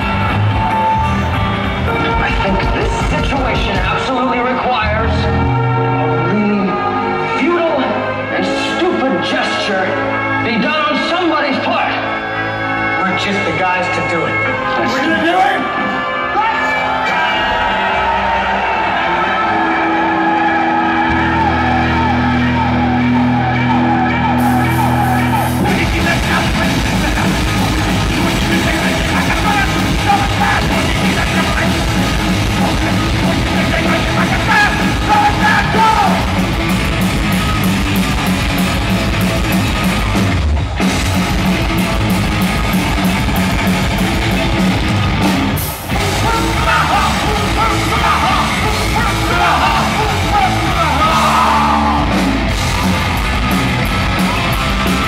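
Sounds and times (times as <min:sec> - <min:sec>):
metal band playing live: 0:00.0 - 0:55.0
person yelling vocals: 0:33.4 - 0:36.4, 0:46.0 - 0:52.1.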